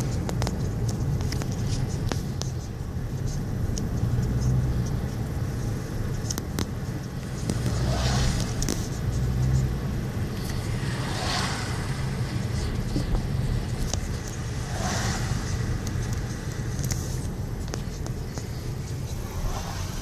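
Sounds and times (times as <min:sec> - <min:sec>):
car cabin road and engine rumble: 0:00.0 - 0:20.0
passing car hiss: 0:10.6 - 0:12.8, 0:14.4 - 0:16.5, 0:18.6 - 0:20.0.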